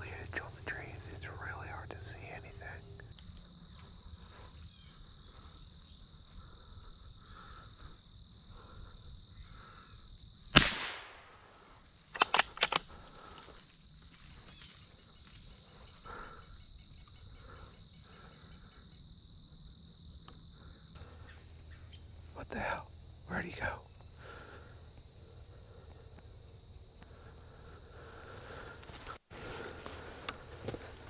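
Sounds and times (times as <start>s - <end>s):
insects chirring: 0.0s - 31.0s
rifle shot: 10.5s - 11.5s
metallic clacks of rifle bolt: 12.2s - 12.9s.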